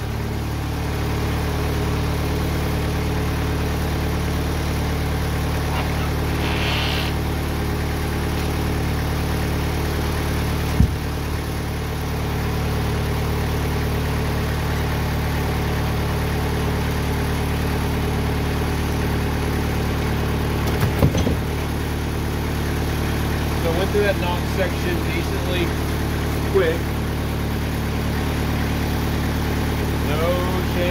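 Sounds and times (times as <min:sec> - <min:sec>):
sawmill engine idling: 0:00.0 - 0:30.9
sharp knocks and thuds: 0:10.7 - 0:11.1, 0:20.6 - 0:21.5.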